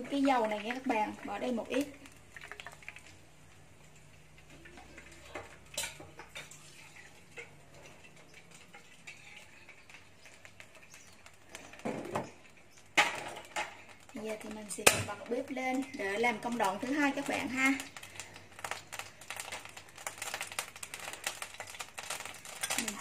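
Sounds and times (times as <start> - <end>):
frying pan clattering on stove grate: 4.5 - 17.9, 18.6 - 23.0.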